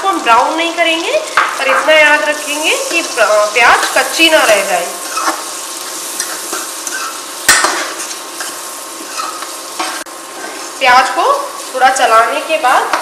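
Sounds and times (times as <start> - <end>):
onions sizzling in butter: 0.0 - 13.0
metal spatula scraping: 5.0 - 10.8.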